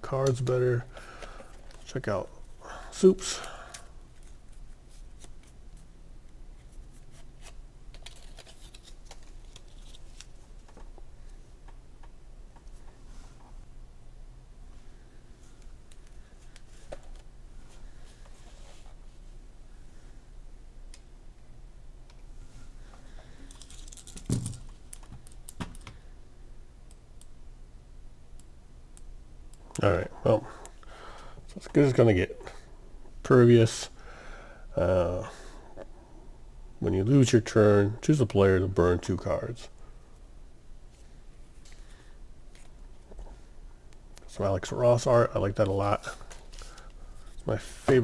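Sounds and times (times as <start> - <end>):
low steady hum: 0.0 - 48.0
cards clicking and rustling: 7.1 - 10.9, 23.5 - 26.0.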